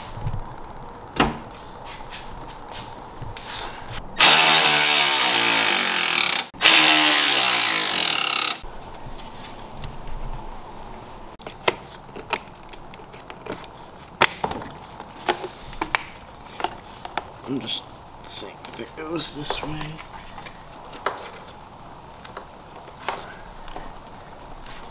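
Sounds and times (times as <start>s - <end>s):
handheld power tool running: 4.2s - 8.6s.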